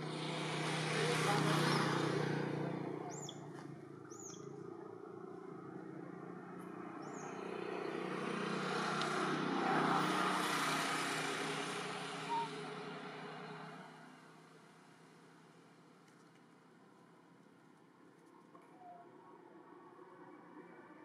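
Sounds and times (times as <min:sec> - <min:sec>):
vehicle passing by: 0:00.0 - 0:14.4
bird chirps: 0:03.1 - 0:04.6, 0:07.0 - 0:08.0, 0:12.3 - 0:12.6.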